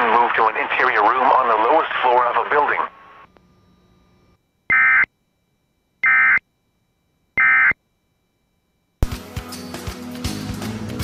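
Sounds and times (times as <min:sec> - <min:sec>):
digital data tone bursts: 0:04.7 - 0:05.1, 0:06.0 - 0:06.4, 0:07.4 - 0:07.8.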